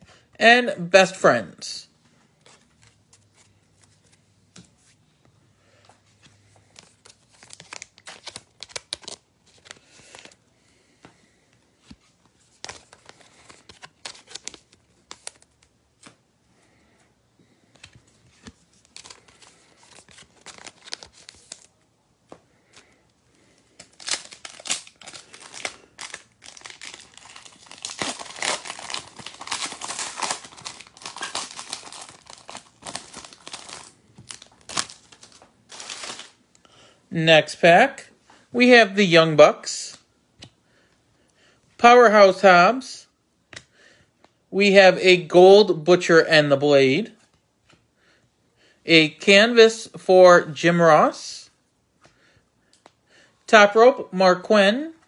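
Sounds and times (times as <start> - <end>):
cards being handled: 5.8 - 10.4, 11.8 - 16.2, 17.7 - 23.0, 23.7 - 36.4
wrapper crinkling and tearing: 6.8 - 10.4, 12.5 - 15.6, 18.4 - 21.8, 23.7 - 36.4.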